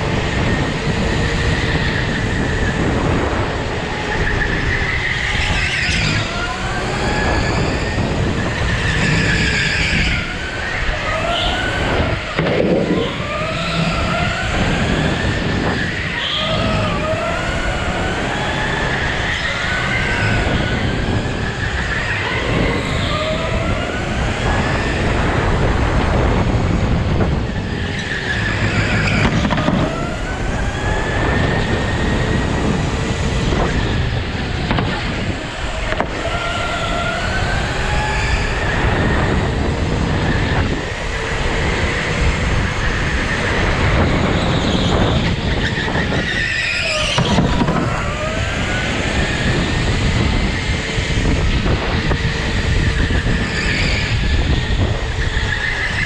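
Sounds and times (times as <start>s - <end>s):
go-kart motor revving: 0.0s - 56.0s
tyre and track noise: 0.0s - 56.0s.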